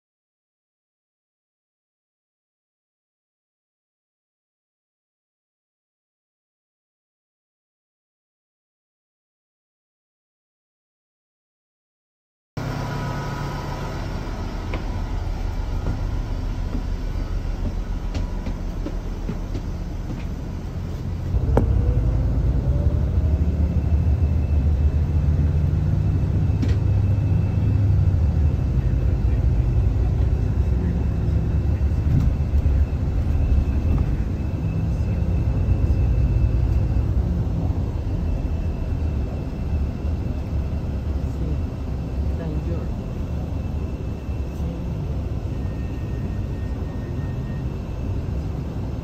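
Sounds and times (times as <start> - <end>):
bus engine and road noise: 12.6 - 49.0
short rising whine: 12.6 - 49.0.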